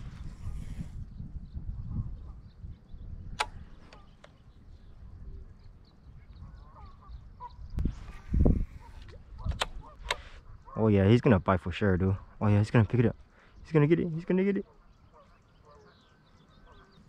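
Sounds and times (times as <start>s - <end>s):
wind rumbling on microphone: 0.0s - 13.7s
faint bird chirps: 0.3s - 17.0s
sharp clicks: 3.3s - 4.4s, 9.0s - 10.3s.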